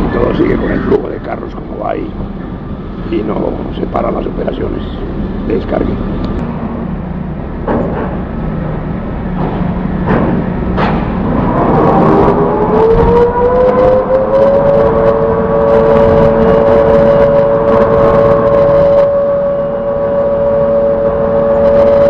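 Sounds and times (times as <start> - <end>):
crane hoist motor whine: 0.0 - 22.0
sharp knocks: 9.4 - 11.2.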